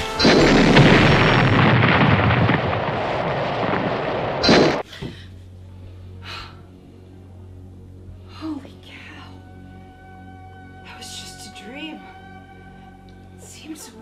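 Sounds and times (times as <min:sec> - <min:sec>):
loud explosion blast: 0:00.2 - 0:04.8
faint low hum: 0:00.2 - 0:14.0.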